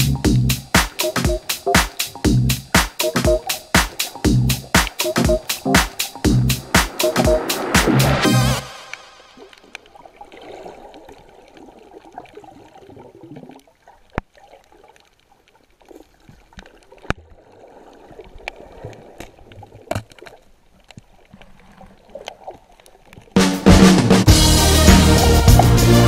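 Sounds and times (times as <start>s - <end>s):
muffled underwater water movement: 8.8s - 23.4s.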